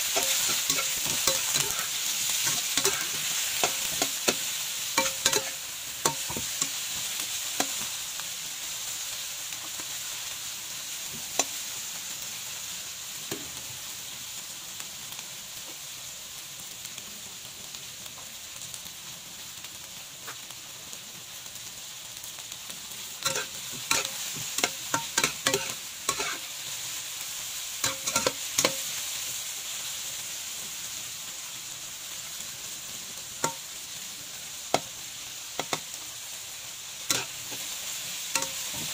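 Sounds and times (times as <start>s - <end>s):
spatula scraping a wok: 0.0s - 7.9s, 23.2s - 26.5s, 27.8s - 29.0s, 37.1s - 38.9s
food sizzling in hot oil: 0.0s - 38.9s.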